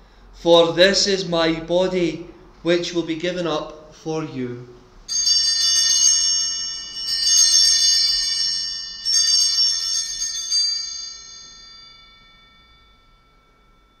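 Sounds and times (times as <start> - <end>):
small bells jangling: 5.1 - 14.0.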